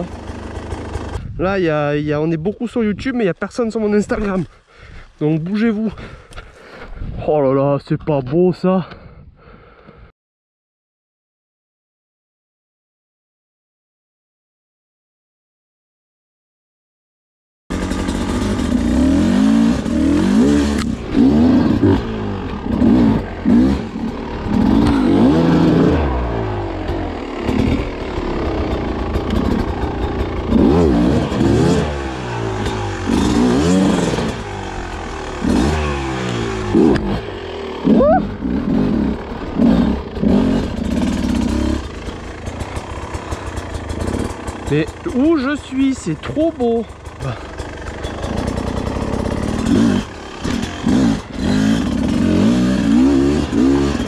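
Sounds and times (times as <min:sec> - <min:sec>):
two-stroke motorcycle engine revving: 0:00.0 - 0:01.4, 0:17.7 - 0:54.0.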